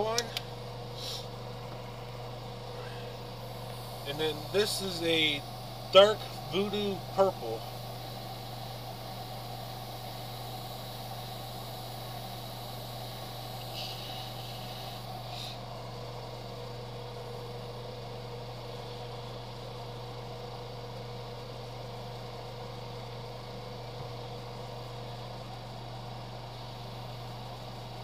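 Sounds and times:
motor hum with faint hiss: 0.0s - 28.0s
airbrush spray hiss: 0.9s - 1.4s, 3.2s - 15.7s.

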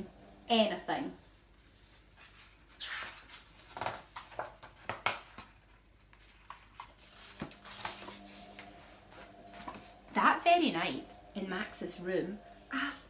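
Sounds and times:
book pages turning: 1.6s - 10.0s.

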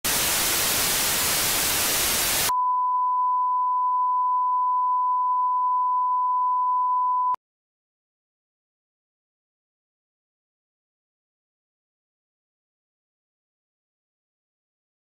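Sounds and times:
television static hiss: 0.0s - 2.5s
steady test tone beep: 2.5s - 7.4s.

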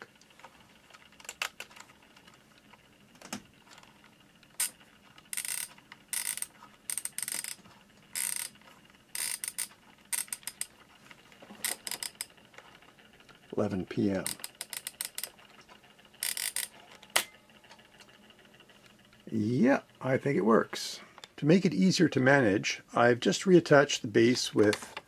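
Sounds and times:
clock number flaps turning: 0.0s - 21.5s, 24.2s - 25.0s
ratcheting clicks of clock knob: 4.6s - 7.6s, 9.2s - 10.7s, 11.6s - 12.3s, 14.2s - 15.4s, 16.2s - 16.7s.

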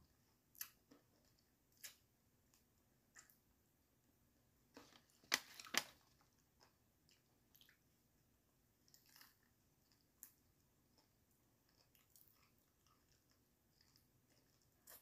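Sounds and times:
crunching crispy fried chicken: 4.9s - 6.2s.

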